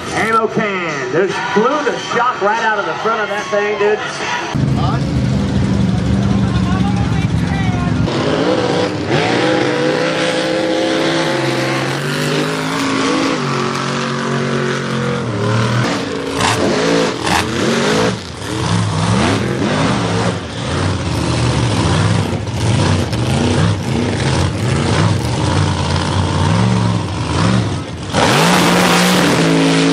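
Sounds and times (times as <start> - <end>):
truck engine revving: 4.5 - 29.9
tyres churning through mud: 7.8 - 29.9.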